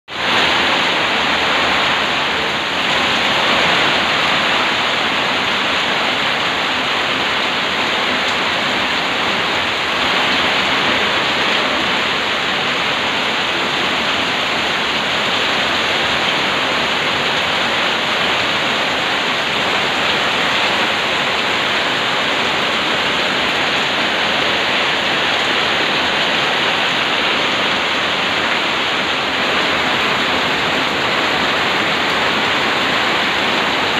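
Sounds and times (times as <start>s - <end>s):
heavy rain on metal roofs: 0.1s - 33.9s
water pouring off roof edges: 0.1s - 33.9s.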